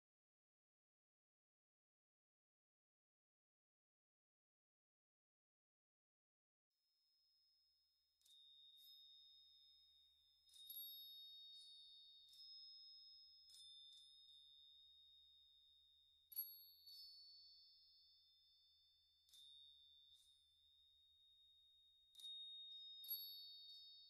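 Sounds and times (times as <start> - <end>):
ringing bell-like notes: 8.2 - 24.0.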